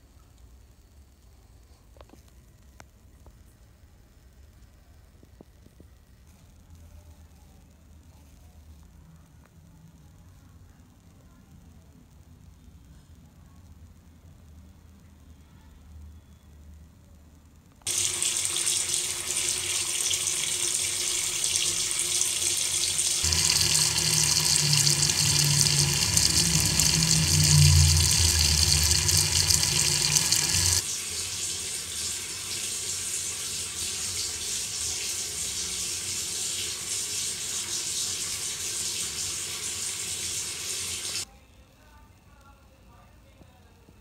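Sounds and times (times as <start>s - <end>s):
tap water pouring into sink: 17.9s - 41.2s.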